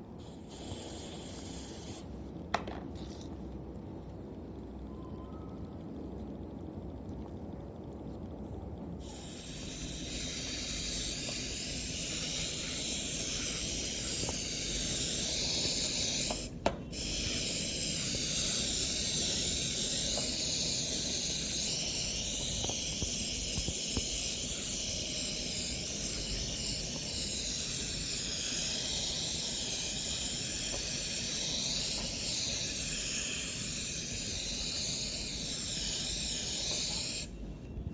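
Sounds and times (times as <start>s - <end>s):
aerosol spray hissing: 0.2s - 2.0s, 9.0s - 37.3s.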